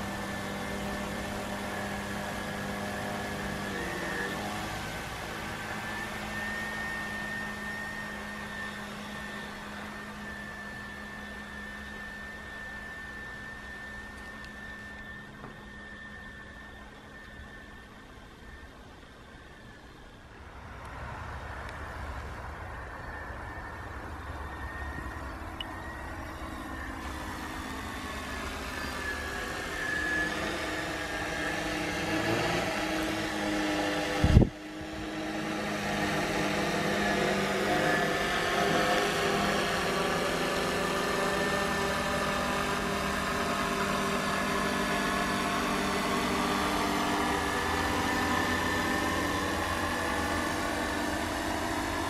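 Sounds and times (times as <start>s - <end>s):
drone propellers buzzing: 0.0s - 52.0s.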